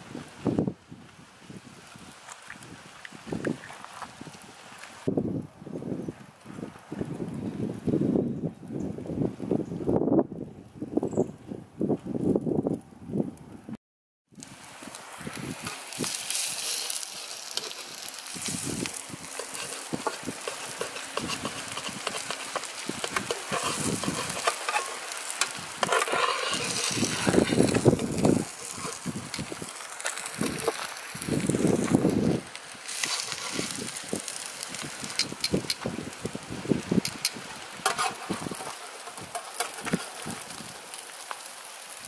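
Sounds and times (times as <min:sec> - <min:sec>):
fish sizzling in a pan: 0:14.4 - 0:42.0
utensils scraping a pan: 0:15.6 - 0:30.9, 0:32.9 - 0:34.4, 0:37.1 - 0:40.4.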